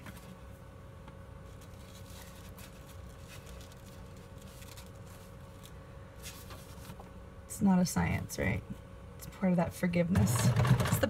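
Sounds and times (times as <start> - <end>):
steady low hum: 0.0 - 11.0
paper and ribbon rustling: 1.5 - 7.0.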